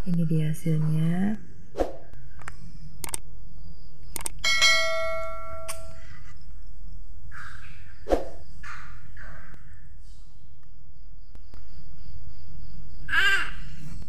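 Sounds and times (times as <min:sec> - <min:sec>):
steady low hum: 0:00.0 - 0:14.0
mouse clicks: 0:04.1 - 0:04.4
bright bell ding: 0:04.4 - 0:05.8.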